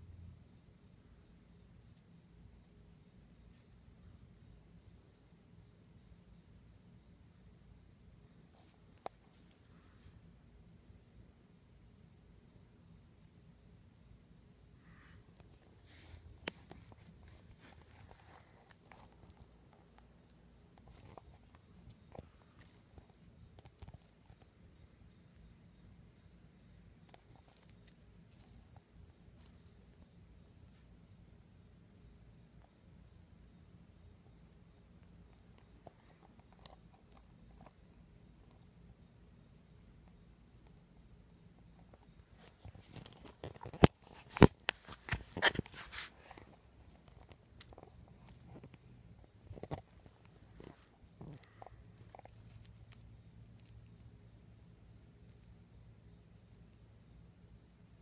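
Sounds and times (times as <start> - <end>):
crickets trilling: 0.0 - 58.0
insects chirring: 0.0 - 58.0
rustling: 14.8 - 24.8, 41.9 - 54.2.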